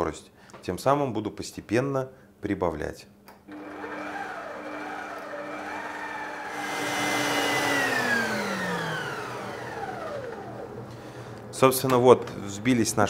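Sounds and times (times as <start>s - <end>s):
stand mixer motor whining: 3.5s - 11.6s.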